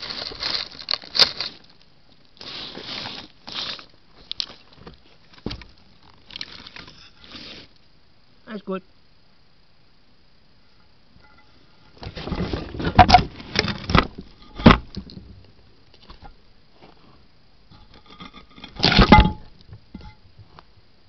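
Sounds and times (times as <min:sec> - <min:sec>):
hedgehog rustling in dry leaves: 0:00.0 - 0:01.8.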